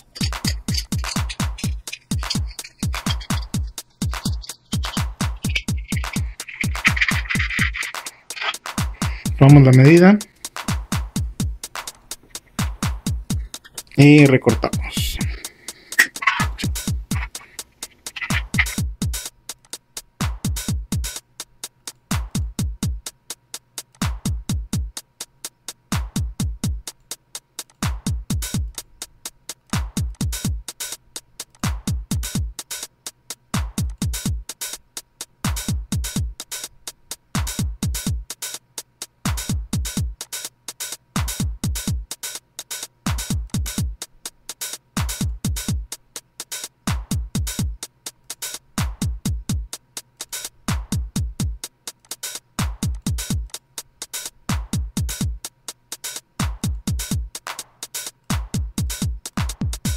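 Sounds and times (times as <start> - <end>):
hi-hat ticks: 0.0 - 59.9.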